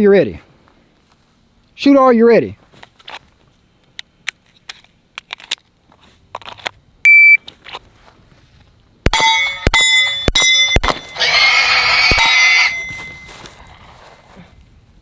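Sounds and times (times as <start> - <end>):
shot timer beep: 7.1 - 7.4
noisy ringing clatter: 9.0 - 13.5
bullets ringing off steel targets: 9.1 - 11.2, 12.1 - 13.3
pistol shots: 9.1 - 11.2.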